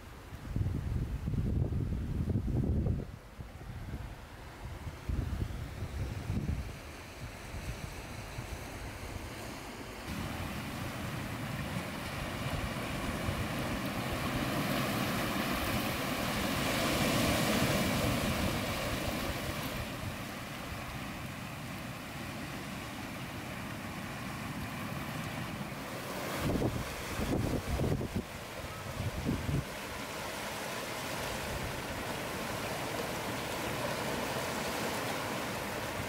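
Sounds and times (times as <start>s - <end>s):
wind on microphone: 0.3s - 9.4s, 10.1s - 21.0s, 26.0s - 30.0s
sea surf washing over rocks: 6.2s - 36.0s.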